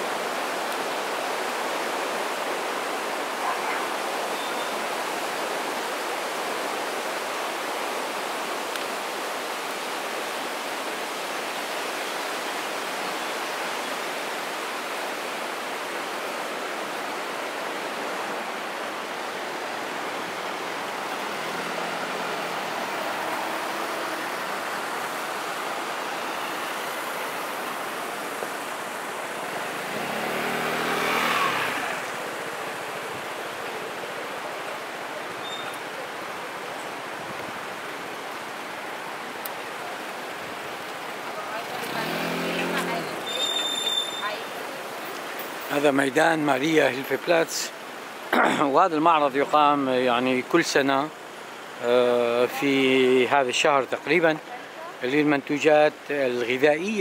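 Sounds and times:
loud vehicle passing close: 0:21.2 - 0:24.8, 0:29.0 - 0:32.6, 0:41.6 - 0:43.3
van engine passing: 0:21.2 - 0:27.4, 0:28.6 - 0:33.0, 0:41.4 - 0:43.4.

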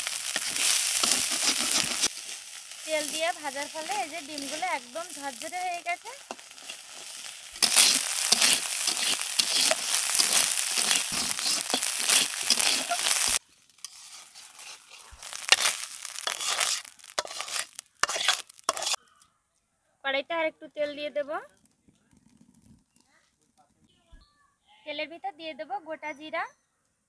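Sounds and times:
fish roe sizzling in oil: 0:00.0 - 0:19.0
steel spatula scraping a pan: 0:00.0 - 0:19.0
spatula tapping: 0:06.2 - 0:19.0.

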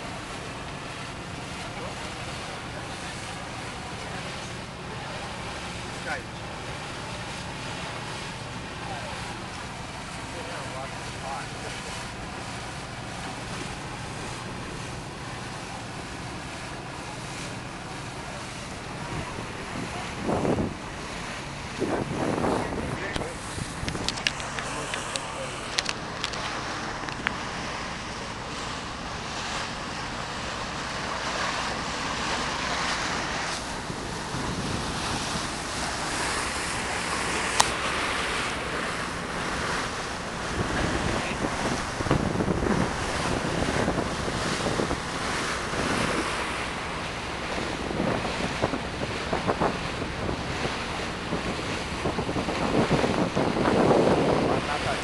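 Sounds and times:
water splashing along boat hull: 0:00.0 - 0:55.0
wind buffeting microphone: 0:12.0 - 0:55.0.

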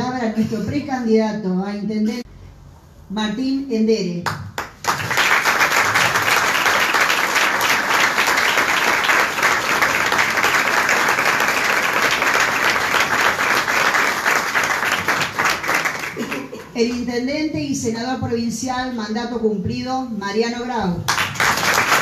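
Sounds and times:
audience applauding: 0:04.6 - 0:16.6, 0:21.1 - 0:22.0.

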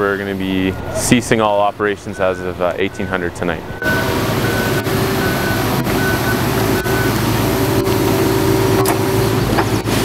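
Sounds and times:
backup alarm beeping: 0:00.0 - 0:09.4
diesel engine running: 0:00.0 - 0:10.0.

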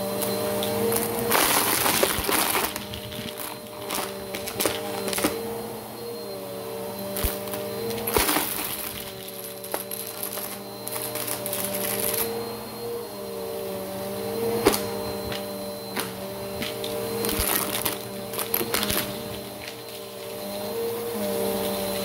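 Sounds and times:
vacuum cleaner whining hum: 0:00.0 - 0:22.0
small objects rattling through nozzle: 0:00.6 - 0:05.4, 0:07.1 - 0:12.3, 0:16.6 - 0:20.6.

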